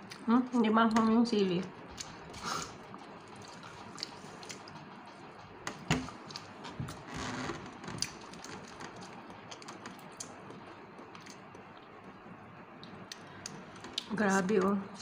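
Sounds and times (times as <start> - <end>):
chewing with mouth clicks: 1.8 - 5.3, 6.1 - 6.8, 7.9 - 12.0.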